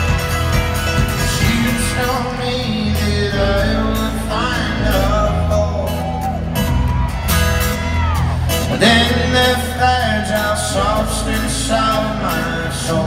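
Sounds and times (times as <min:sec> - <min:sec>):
acoustic guitar strumming: 0:00.0 - 0:13.0
double bass: 0:00.0 - 0:13.0
drums: 0:00.0 - 0:13.0
person singing: 0:01.2 - 0:06.4, 0:08.5 - 0:13.0.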